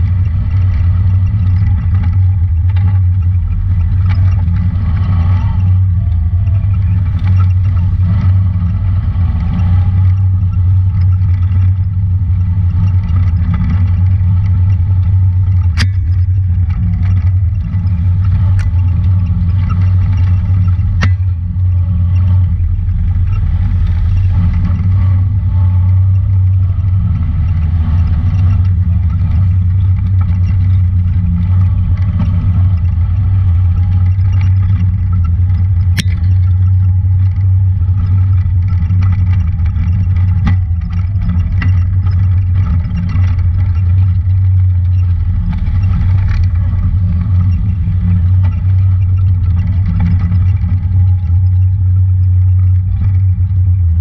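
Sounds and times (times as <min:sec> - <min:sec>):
engine running with low drone: 0:00.0 - 0:54.0
clicks and knocks: 0:12.6 - 0:22.5, 0:25.9 - 0:53.6.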